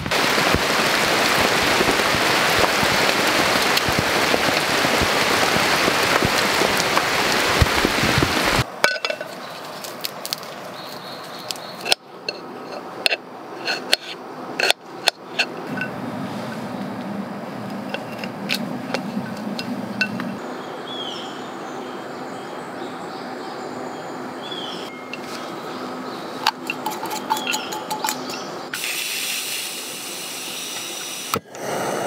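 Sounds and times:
steady hiss with crackles: 0.0s - 20.9s, 28.0s - 32.0s.

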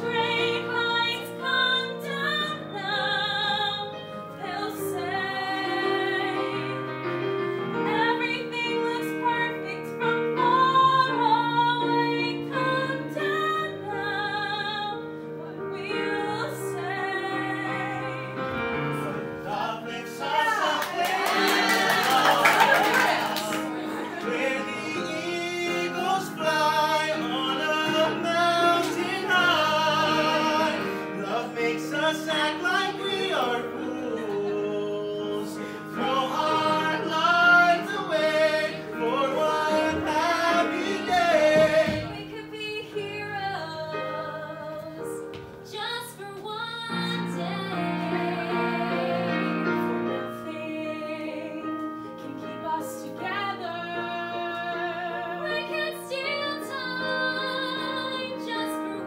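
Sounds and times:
female voices singing with vibrato: 0.0s - 6.8s, 19.9s - 59.0s
instrumental accompaniment: 16.9s - 59.0s.

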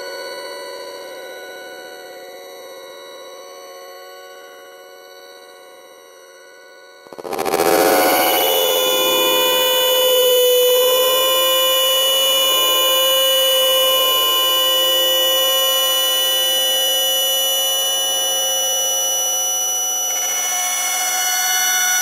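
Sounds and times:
electronic drone of steady tones: 7.0s - 22.0s.

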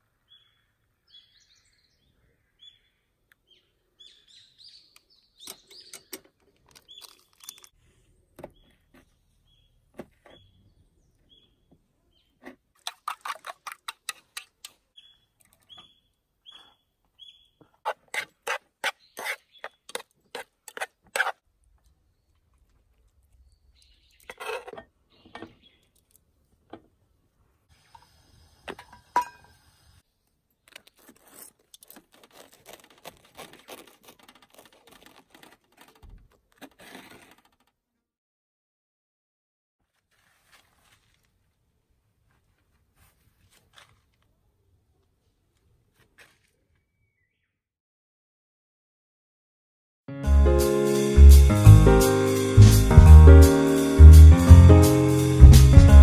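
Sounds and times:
bird chirping: 0.2s - 7.7s, 8.5s - 12.4s, 14.9s - 17.7s, 23.4s - 24.4s, 25.1s - 26.0s, 46.8s - 47.6s.

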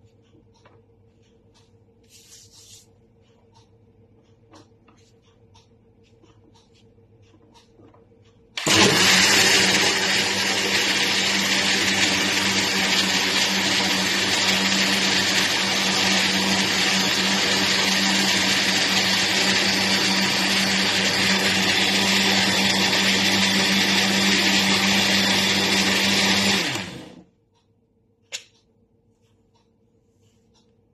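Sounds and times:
blender running: 8.6s - 27.3s.

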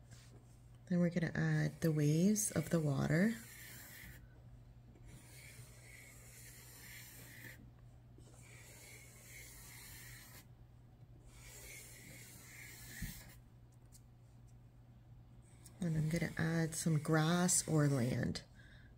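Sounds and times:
marker scratching on paper: 1.2s - 4.3s, 5.0s - 10.5s, 11.2s - 13.4s, 15.8s - 18.3s.

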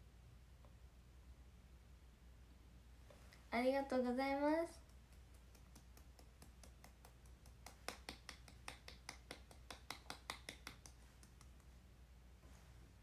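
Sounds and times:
person clapping lightly: 4.8s - 11.7s.

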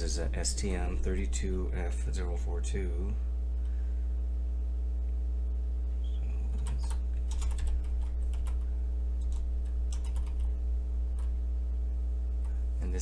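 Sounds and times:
low electrical hum: 0.0s - 13.0s
keyboard keys clicking: 6.6s - 8.6s, 9.2s - 10.5s.

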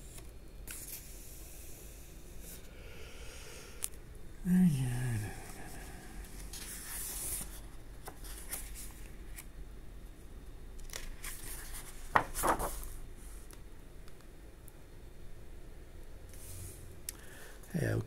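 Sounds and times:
paper pages rustling: 6.3s - 9.5s, 10.8s - 13.4s
page flipping: 10.8s - 13.0s.

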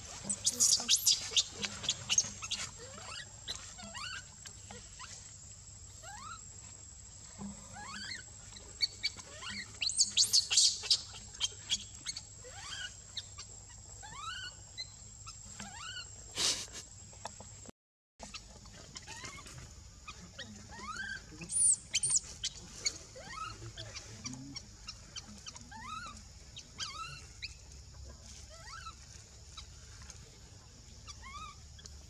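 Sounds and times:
baby monkey crying: 0.3s - 5.0s, 6.0s - 6.4s, 9.3s - 13.0s, 14.0s - 14.6s, 20.7s - 22.2s, 22.9s - 23.6s, 26.8s - 27.3s, 28.5s - 29.0s, 31.1s - 31.6s.

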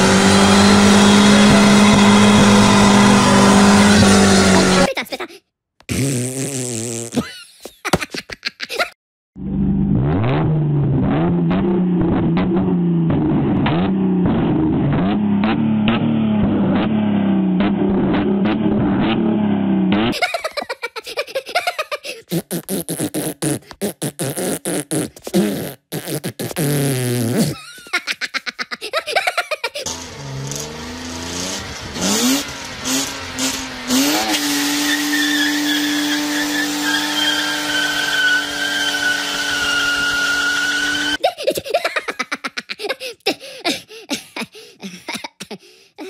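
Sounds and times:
car engine revving: 0.0s - 4.9s, 9.4s - 20.2s, 29.9s - 41.2s
cartoon laughter and gibberish: 3.2s - 5.4s, 7.1s - 9.0s, 20.1s - 24.2s, 27.3s - 29.9s, 41.2s - 46.0s.

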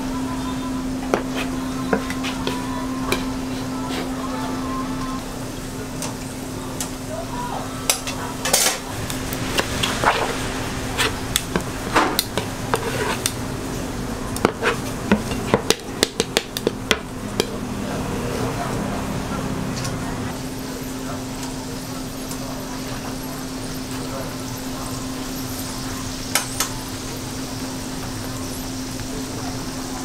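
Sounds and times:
steady low hum: 0.0s - 30.0s
knife scraping plastic cutting board: 12.7s - 13.4s, 14.4s - 15.2s.

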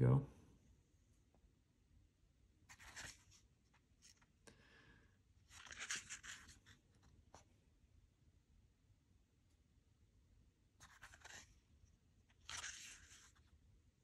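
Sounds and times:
book pages rustling: 2.7s - 4.4s, 5.5s - 7.5s, 10.8s - 13.6s.

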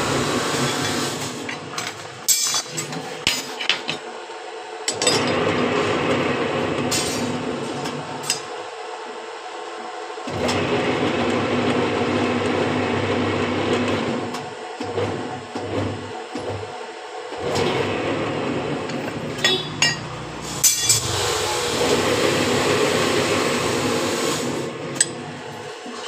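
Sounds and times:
machine hum: 10.3s - 26.0s.

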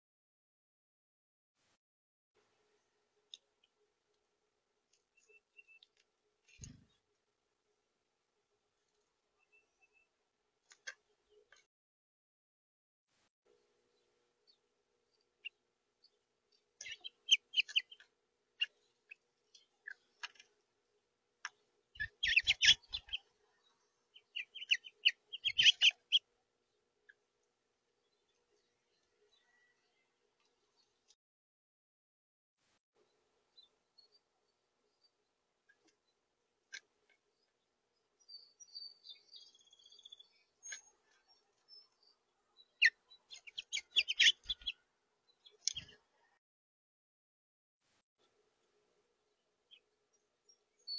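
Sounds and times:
finches chirping: 16.8s - 18.0s, 22.0s - 26.2s, 38.2s - 46.0s
bird warbling: 24.4s - 26.2s.

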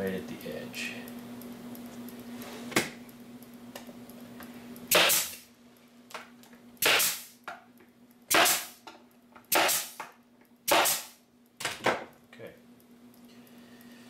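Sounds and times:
pneumatic stapler firing: 4.9s - 5.4s, 6.8s - 7.4s, 8.3s - 8.8s, 9.5s - 10.1s, 10.7s - 11.2s.

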